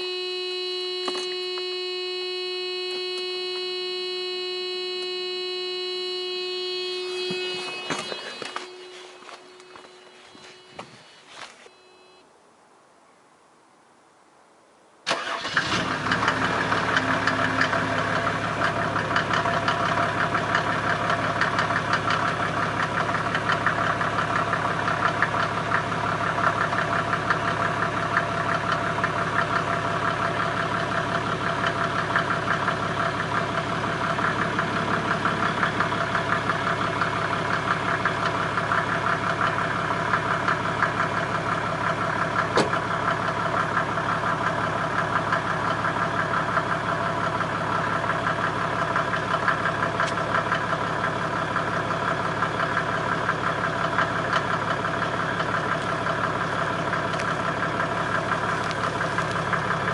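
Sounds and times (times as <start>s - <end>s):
diesel engine starting and idling: 15.1s - 59.9s.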